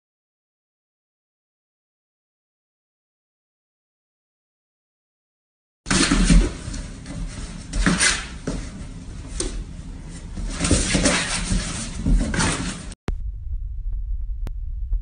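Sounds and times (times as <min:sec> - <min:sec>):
cardboard box rustling and scraping: 0:10.1 - 0:13.0
low throbbing hum: 0:13.1 - 0:15.0.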